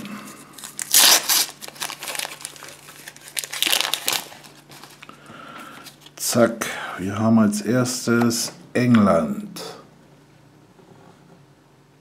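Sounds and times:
plastic wrapper tearing and crinkling: 0.5s - 5.1s.

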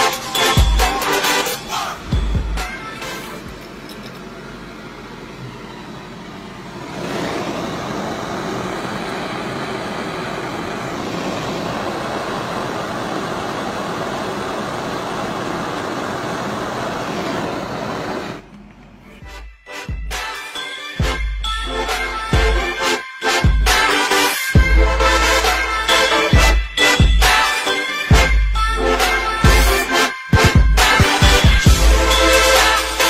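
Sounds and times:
blowtorch flame hissing: 6.6s - 18.5s.

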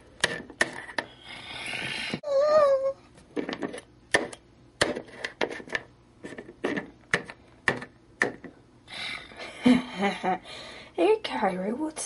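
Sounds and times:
wavering vocal tone: 1.3s - 3.0s.

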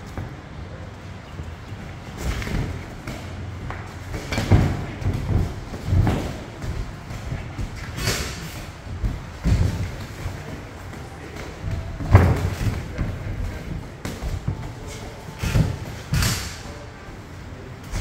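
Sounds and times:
boxing gloves thudding: 2.2s - 10.7s, 11.3s - 13.2s.

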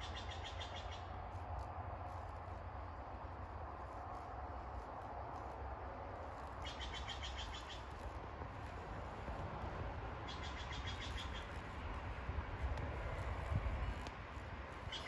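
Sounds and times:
bird singing rapid trill: 0.0s - 1.2s, 6.6s - 8.1s, 10.2s - 11.6s
steady low rumble: 0.0s - 15.0s.

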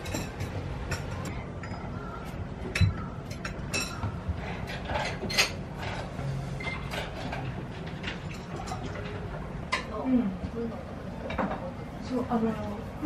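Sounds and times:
plates and cups clinking: 0.0s - 10.0s, 11.2s - 11.7s.

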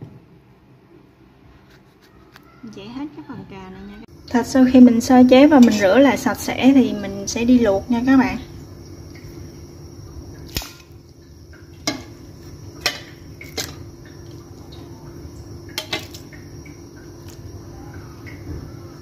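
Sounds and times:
steady low hum: 3.1s - 19.0s
meat knocking in metal pot: 11.7s - 14.8s, 15.7s - 17.4s.

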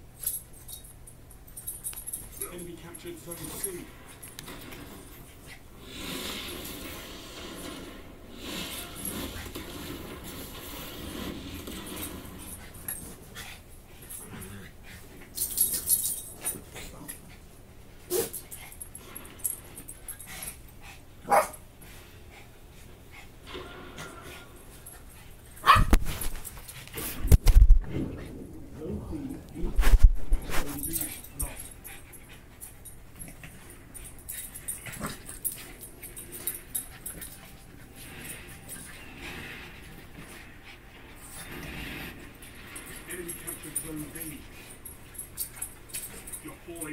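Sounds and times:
small dogs growling: 14.2s - 15.0s, 34.8s - 35.4s
dog barking: 21.3s - 21.6s, 25.6s - 26.0s
dogs scuffling: 24.8s - 28.3s, 29.3s - 46.9s.

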